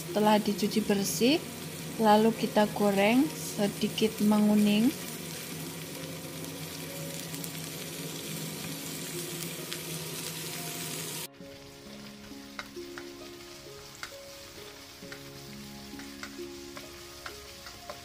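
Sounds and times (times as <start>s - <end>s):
fish frying in oil: 0.0s - 18.0s
shallots sizzling: 0.0s - 18.0s
spatula clicking on wok: 14.0s - 14.2s, 16.0s - 18.0s.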